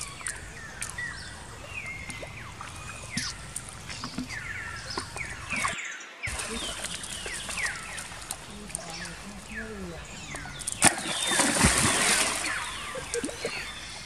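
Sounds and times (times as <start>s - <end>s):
small clicks: 0.0s - 1.4s
water splashing and lapping: 0.0s - 14.0s.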